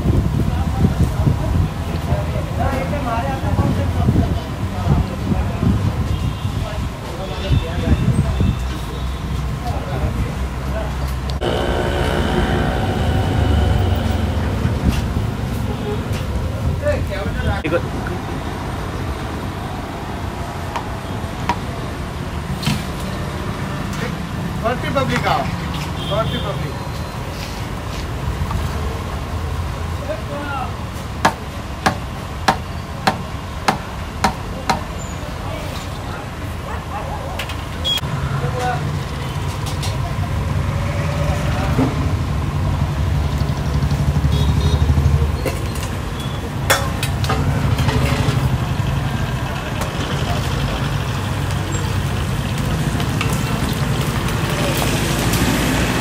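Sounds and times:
low rumble: 0:11.4 - 0:16.8
blower fanning fire rumble: 0:11.4 - 0:17.2, 0:46.7 - 0:56.0.

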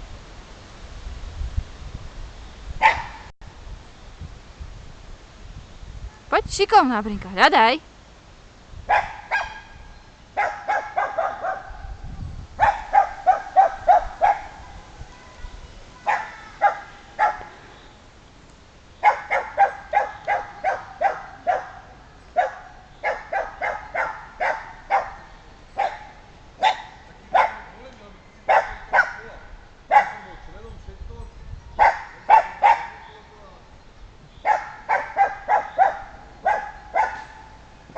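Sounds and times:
terrier barking sharply: 0:02.8 - 0:03.3, 0:08.9 - 0:09.8, 0:10.4 - 0:11.8, 0:12.6 - 0:14.6, 0:16.0 - 0:17.6, 0:19.0 - 0:27.8, 0:28.5 - 0:30.4, 0:31.8 - 0:33.1, 0:34.4 - 0:37.6.

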